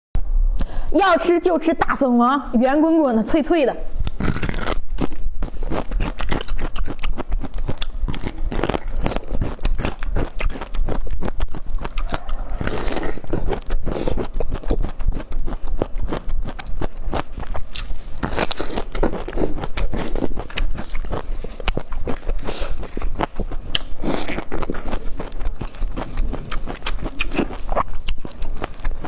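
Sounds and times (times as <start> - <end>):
crunchy chewing: 4.0 - 29.0.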